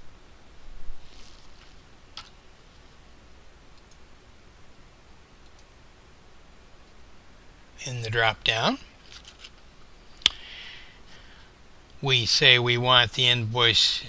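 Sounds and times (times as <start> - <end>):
low hiss: 0.0 - 14.0
computer mouse clicks: 3.8 - 4.0, 5.4 - 5.7.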